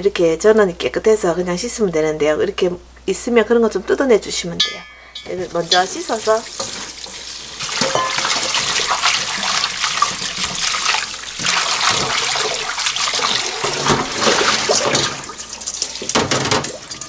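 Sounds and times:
greens rinsed by hand: 0:04.6 - 0:17.0
tap water splashing into sink: 0:05.4 - 0:17.0.

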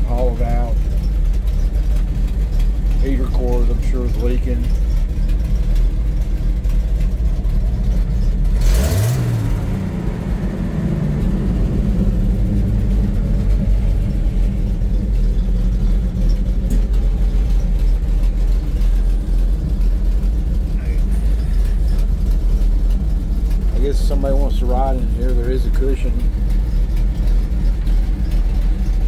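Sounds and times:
truck engine idling: 0:00.0 - 0:29.0.

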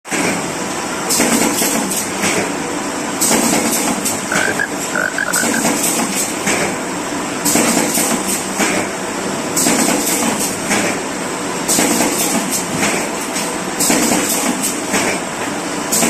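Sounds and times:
sharp machine strokes: 0:04.3 - 0:05.6.

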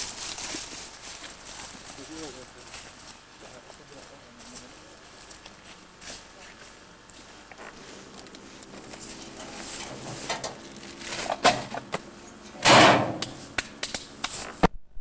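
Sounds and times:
plastic bag rustling: 0:00.0 - 0:02.6.

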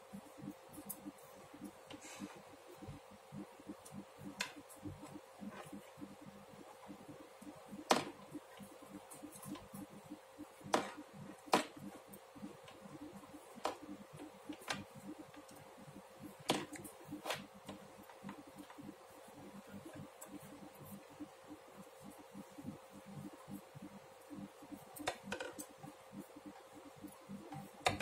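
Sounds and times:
faint steady hum: 0:00.0 - 0:28.0
knitting needles clicking: 0:03.3 - 0:05.8, 0:22.0 - 0:28.0.

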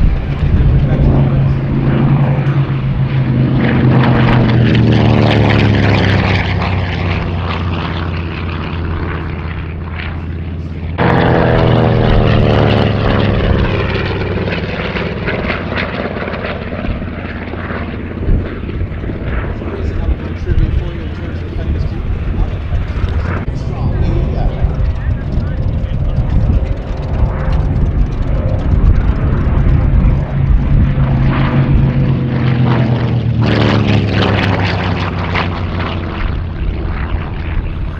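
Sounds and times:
propeller plane passing low: 0:00.0 - 0:37.9.

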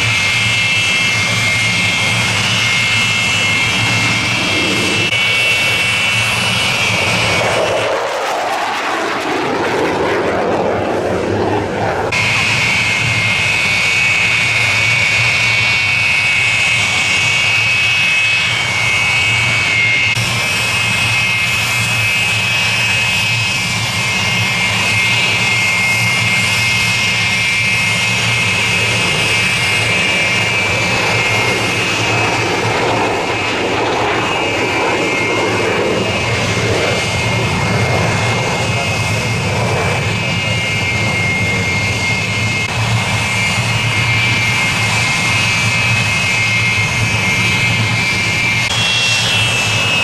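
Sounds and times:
jet engine whine: 0:00.0 - 0:50.0
jet roar: 0:00.0 - 0:50.0.

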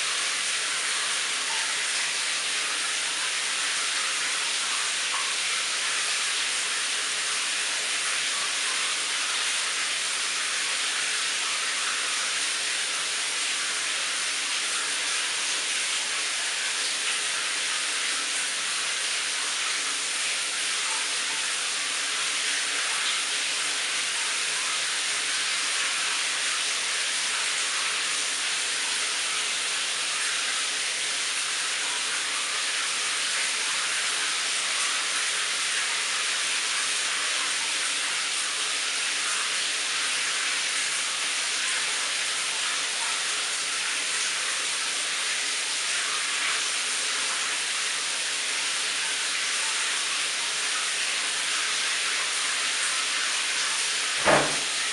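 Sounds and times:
shower water spraying: 0:00.0 - 0:54.9.

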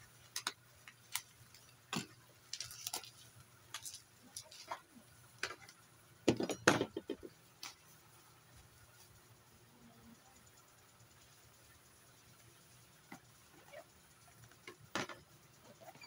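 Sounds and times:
bubble wrap crinkling: 0:02.4 - 0:04.8.

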